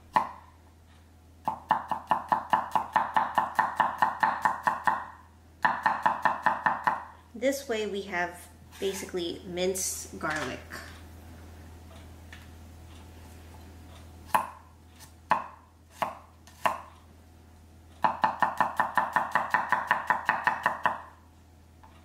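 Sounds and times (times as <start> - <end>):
knife chopping on wooden board: 0.1 - 0.4, 1.4 - 7.0, 14.3 - 16.9, 18.0 - 21.1.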